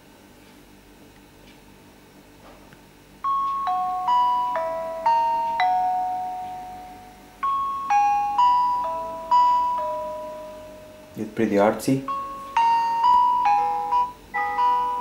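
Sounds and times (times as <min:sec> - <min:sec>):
slow bell-like melody: 0:03.2 - 0:11.3, 0:11.9 - 0:15.0.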